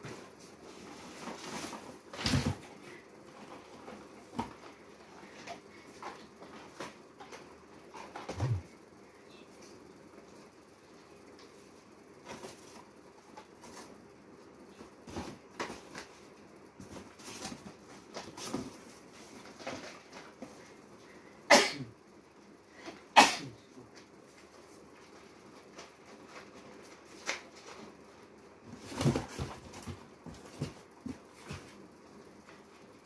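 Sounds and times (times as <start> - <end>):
cardboard boxes rustling and scraping: 0.0 - 8.7, 16.8 - 20.6, 28.6 - 31.9.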